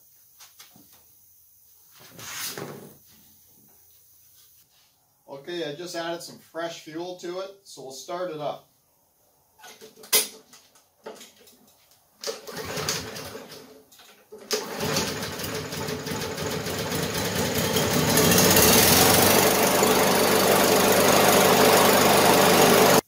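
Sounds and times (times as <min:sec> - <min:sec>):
lawn mower pull-start: 0:12.2 - 0:23.0
lawn mower engine running: 0:12.3 - 0:13.7, 0:14.5 - 0:23.0.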